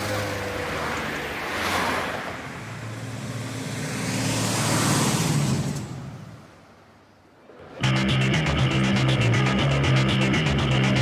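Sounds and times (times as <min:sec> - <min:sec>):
cars passing by: 0:00.0 - 0:11.0.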